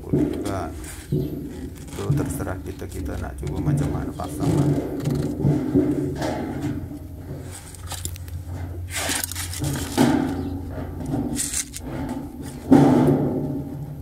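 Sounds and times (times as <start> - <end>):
low steady hum: 0.0 - 14.0
rustling and scraping handling noise: 0.0 - 14.0.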